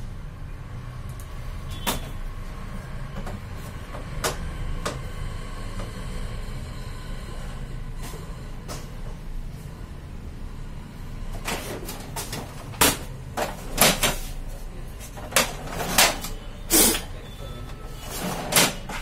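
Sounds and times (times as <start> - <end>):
copier doors and drawers clunking: 11.3 - 16.6, 17.6 - 19.0.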